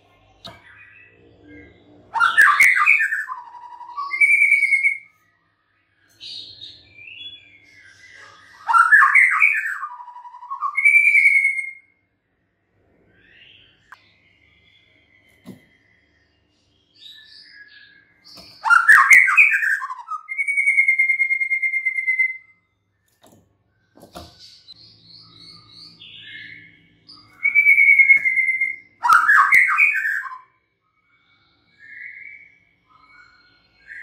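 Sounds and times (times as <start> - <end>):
songbird singing: 0.0 - 11.9, 13.0 - 34.0.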